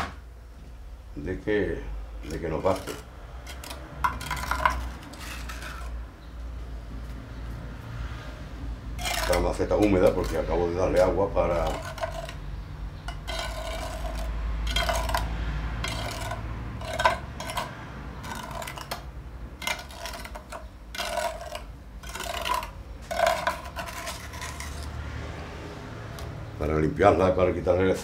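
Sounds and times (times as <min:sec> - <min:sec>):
wet cement scraped on pot: 0:02.2 - 0:06.0, 0:09.0 - 0:25.1.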